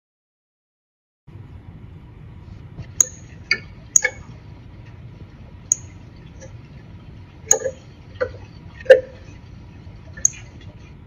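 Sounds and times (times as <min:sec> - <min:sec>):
steady low hiss: 0:01.3 - 0:11.0.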